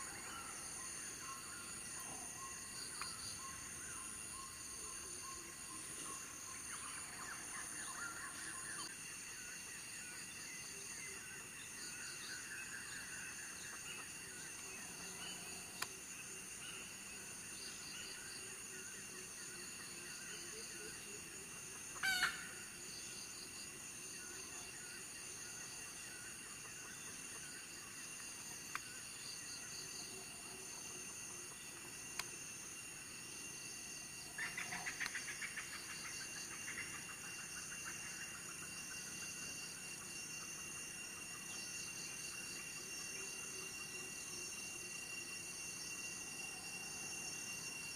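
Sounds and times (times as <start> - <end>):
insects chirring: 0.0 - 47.9
junglefowl call: 22.0 - 22.6.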